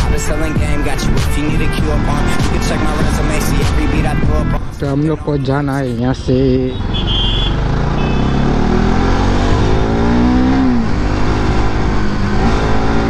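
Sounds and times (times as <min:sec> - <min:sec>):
wind and road rush: 0:01.4 - 0:13.0
motorcycle engine accelerating: 0:06.1 - 0:13.0.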